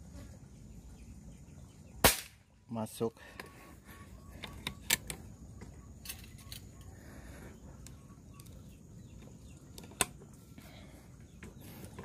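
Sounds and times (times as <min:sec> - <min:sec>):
air rifle handling clicks: 0:04.4 - 0:05.2.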